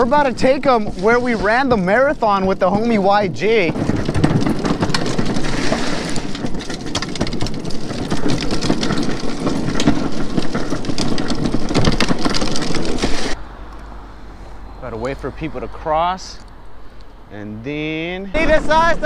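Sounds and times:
wheels rumbling on concrete: 0.0s - 19.0s
quick clicks and rattles: 3.5s - 13.4s.

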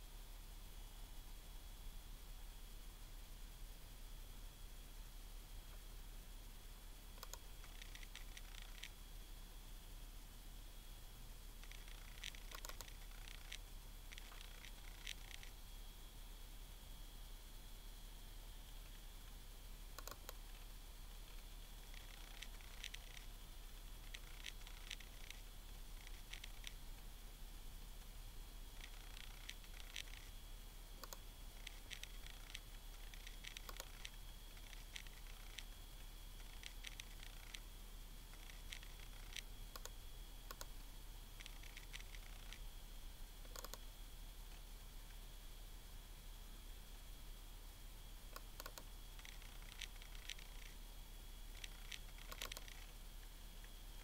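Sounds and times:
faint high whine: 0.0s - 54.0s
laptop clicking: 7.2s - 9.0s, 11.6s - 15.5s, 20.0s - 20.4s, 21.8s - 23.3s, 24.0s - 25.4s, 26.0s - 26.8s, 28.8s - 30.3s, 31.0s - 35.7s, 36.4s - 37.6s, 38.3s - 40.7s, 41.4s - 42.6s, 43.4s - 43.8s, 48.3s - 50.8s, 51.5s - 52.9s.

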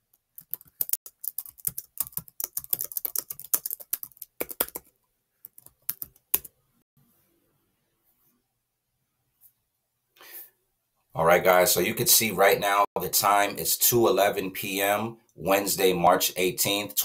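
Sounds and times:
computer keyboard typing: 0.0s - 6.5s.

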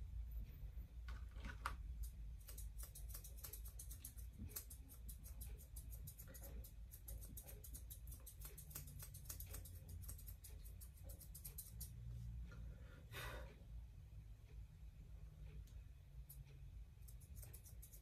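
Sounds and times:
grooming shears snipping fur: 2.0s - 12.0s, 17.0s - 18.0s.

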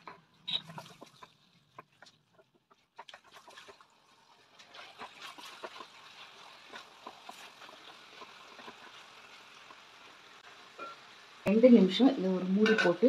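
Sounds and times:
spatula scraping and tapping a pan: 0.0s - 3.8s, 10.8s - 11.0s, 12.6s - 13.0s
crackling sizzle: 0.0s - 13.0s.

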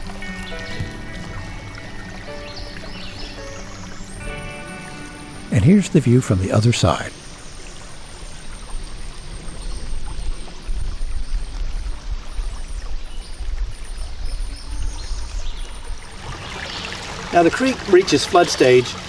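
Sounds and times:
creek water over stones: 0.0s - 19.0s.

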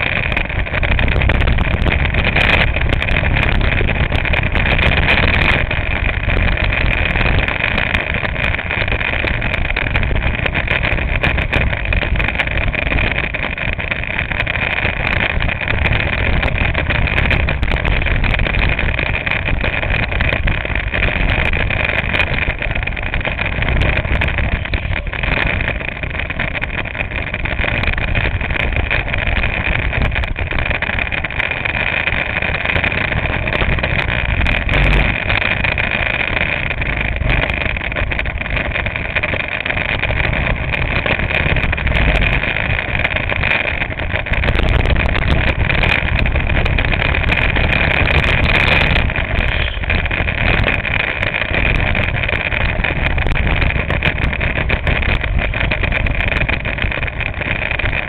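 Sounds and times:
go-kart engine racing: 0.0s - 58.0s.

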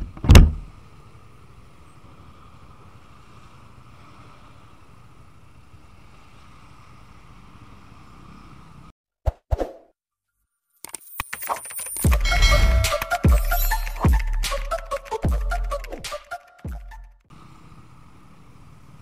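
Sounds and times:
bus passing: 0.0s - 8.9s, 17.3s - 19.0s
traffic noise: 0.0s - 8.9s, 17.3s - 19.0s.

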